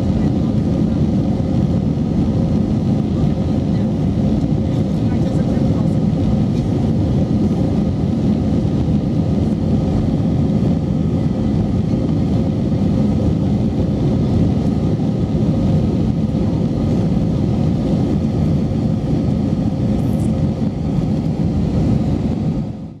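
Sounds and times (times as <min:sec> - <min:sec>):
airplane cabin drone: 0:00.0 - 0:23.0.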